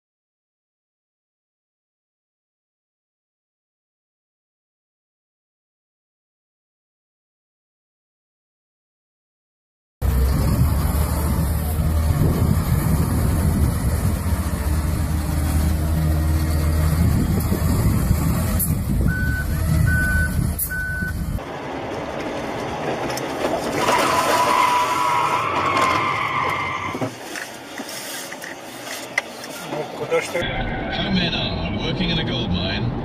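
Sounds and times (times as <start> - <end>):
car road noise on highway: 10.0 - 33.0
heavy diesel engines rumbling: 10.0 - 33.0
backup alarm beeping: 19.0 - 21.4.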